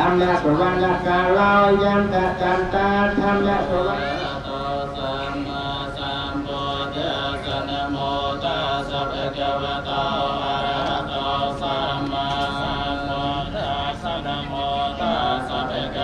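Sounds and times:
voices chanting in unison: 0.0s - 16.0s.

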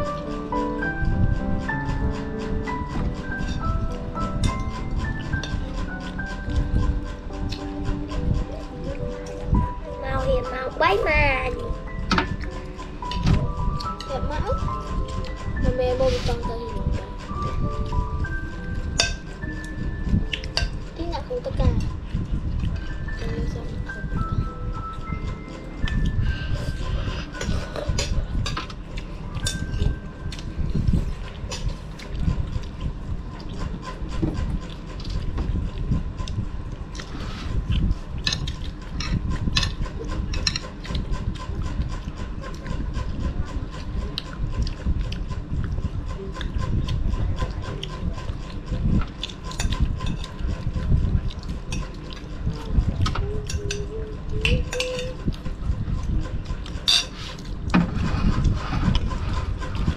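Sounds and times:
low rumbling background: 0.0s - 59.9s
chewing and mouth noises: 24.9s - 59.9s
spoons clinking on plates: 29.4s - 30.0s, 56.8s - 57.2s.

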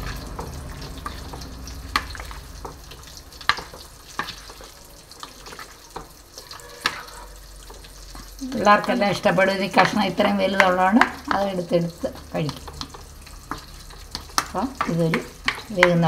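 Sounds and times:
spatula scraping frying pan: 0.0s - 11.5s
low sizzle: 0.0s - 16.0s.

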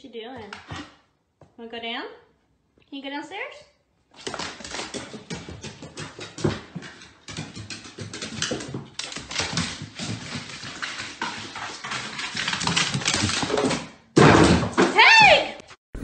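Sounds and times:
dog claws clicking on wooden stairs: 4.2s - 14.8s.

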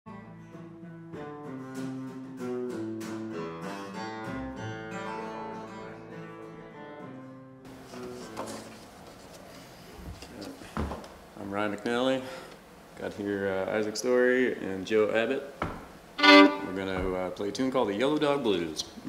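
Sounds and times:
room noise: 7.7s - 19.0s.

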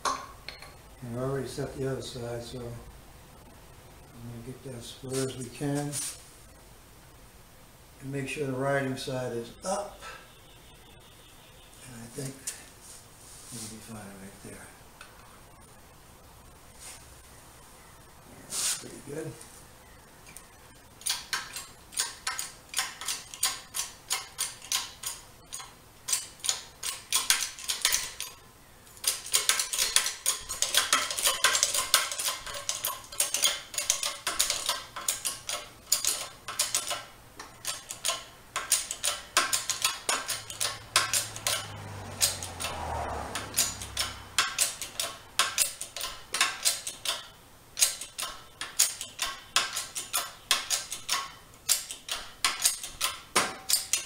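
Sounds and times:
hydraulic press pump clicking: 29.0s - 42.8s, 43.4s - 54.0s.

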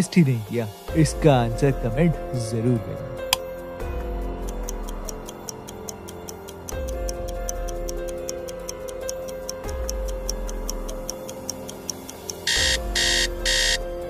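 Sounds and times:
background music with low bass: 0.0s - 14.0s
clock ticking: 4.4s - 13.8s.

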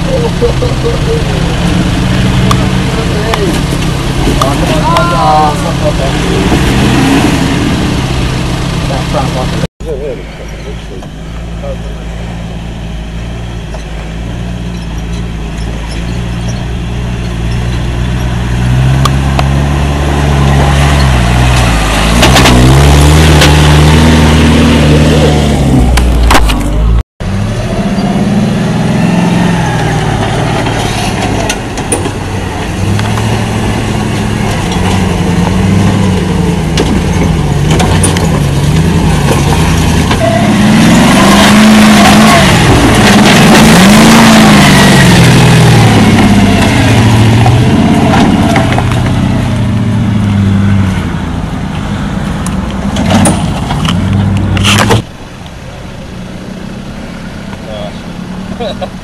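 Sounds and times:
off-road engines revving: 0.0s - 59.0s.

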